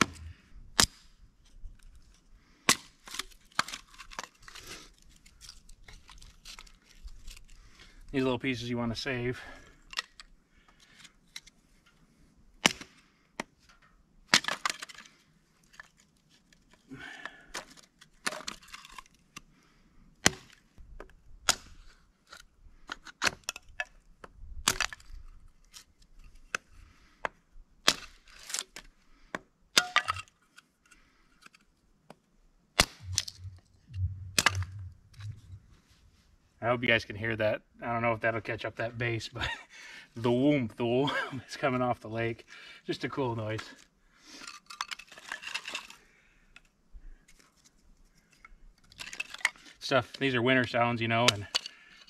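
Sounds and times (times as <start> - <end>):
hatchet splitting wood: 0.0 - 1.1, 2.7 - 4.2, 12.6 - 13.5, 20.2 - 21.9, 24.6 - 25.0, 27.8 - 30.2, 34.4 - 34.7.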